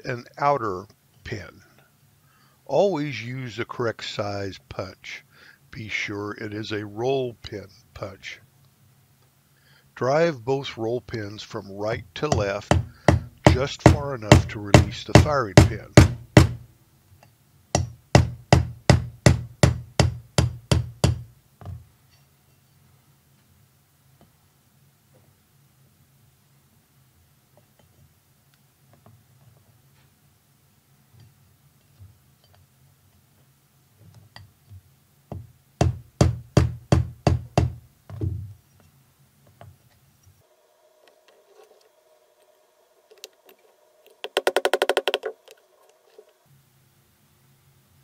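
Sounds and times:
hammer tapping metal punch: 0:12.3 - 0:16.6, 0:17.8 - 0:21.8, 0:35.3 - 0:37.8.

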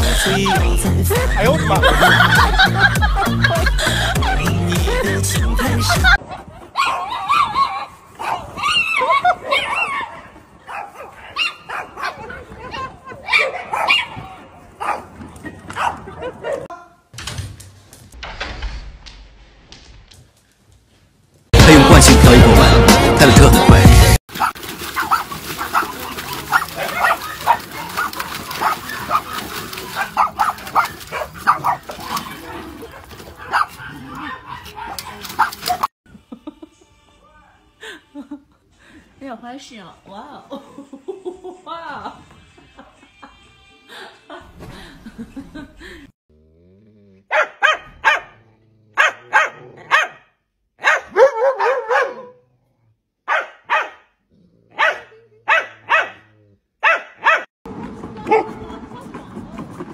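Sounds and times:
dogs barking and yipping: 0:06.0 - 0:16.7, 0:24.3 - 0:35.9, 0:47.3 - 0:48.4, 0:49.0 - 0:50.2, 0:50.8 - 0:52.4, 0:53.3 - 0:54.0, 0:54.7 - 0:57.5
dog drawn-out cry: 0:24.3 - 0:32.5.

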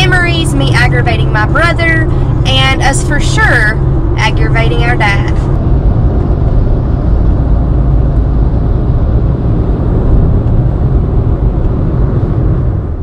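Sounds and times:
road and wind noise in car: 0:00.0 - 0:13.0.

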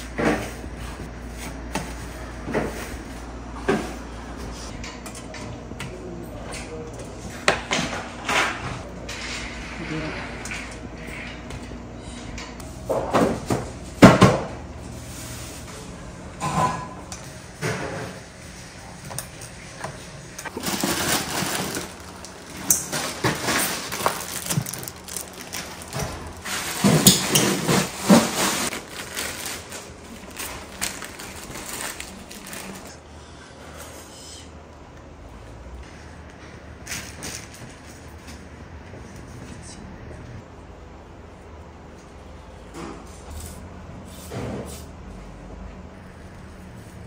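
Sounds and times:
kitchen containers clattering: 0:20.5 - 0:32.9.

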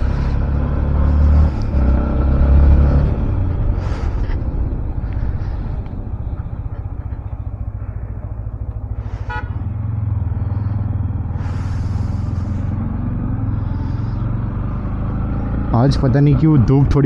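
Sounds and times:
motorcycle engine running: 0:00.0 - 0:17.0
horn toot: 0:09.1 - 0:09.6.

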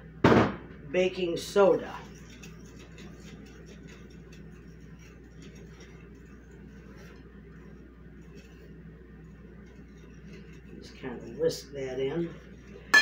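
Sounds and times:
low steady hum: 0:00.0 - 0:13.0
whisk scraping glass bowl: 0:01.2 - 0:13.0.

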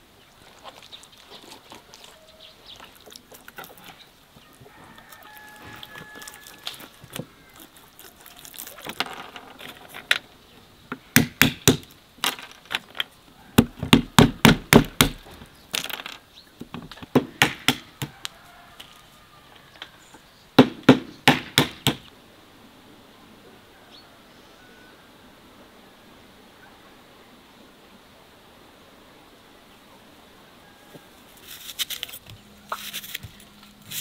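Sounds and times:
walnuts cracking on wooden block: 0:10.9 - 0:18.9.

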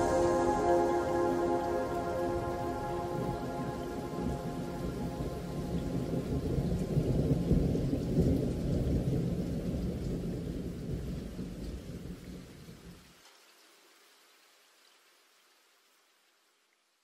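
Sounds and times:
thunder rumbling: 0:00.0 - 0:12.0
rain: 0:00.0 - 0:17.0.

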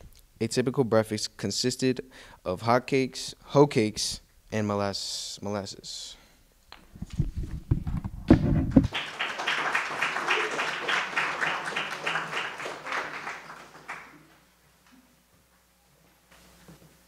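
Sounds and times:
microphone thumps: 0:06.8 - 0:08.9
audience clapping: 0:08.7 - 0:14.4.

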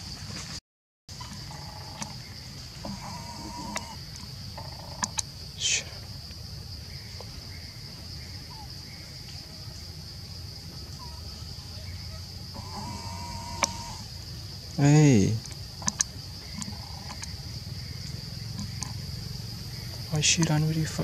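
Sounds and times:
high-pitched insect buzz: 0:01.2 - 0:05.3, 0:06.9 - 0:21.0
brief animal calls: 0:02.8 - 0:04.0, 0:12.1 - 0:14.1
sharp clicks: 0:02.8 - 0:05.3, 0:13.6 - 0:13.8, 0:15.4 - 0:17.4.

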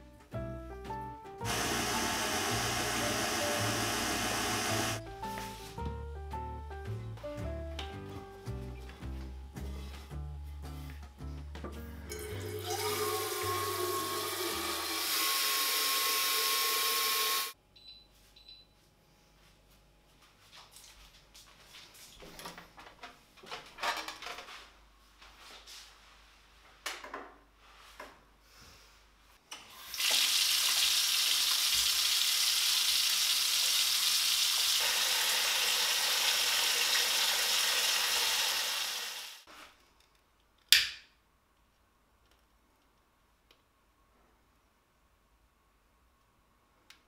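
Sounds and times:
water running into a bathtub: 0:12.3 - 0:17.5, 0:29.8 - 0:39.4.

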